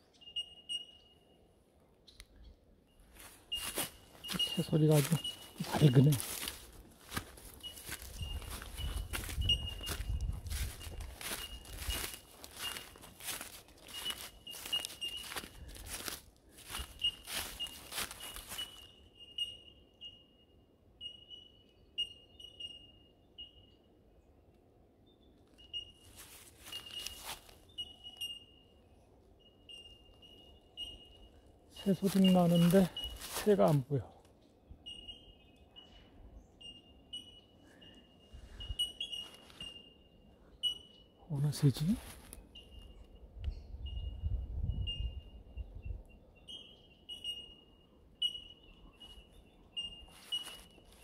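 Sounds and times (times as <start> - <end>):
birds calling high notes: 2.1 - 23.9, 25.6 - 34.0
rustle: 3.1 - 19.0, 26.0 - 28.3, 31.8 - 33.9, 50.0 - 51.0
bird bell-like ping notes: 17.0 - 23.8, 26.7 - 33.9, 34.8 - 41.8, 46.4 - 50.8.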